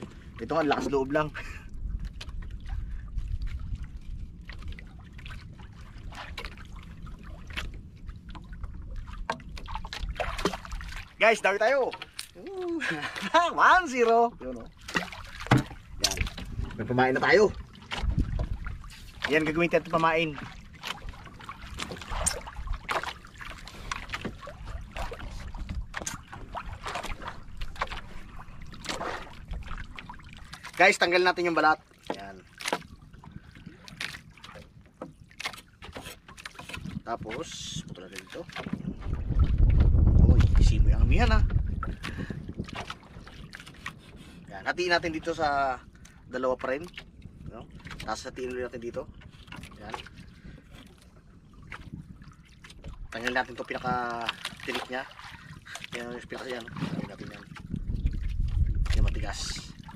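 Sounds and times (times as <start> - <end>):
water lapping around boat: 0.0 - 59.9
steady low rumble: 39.1 - 42.2.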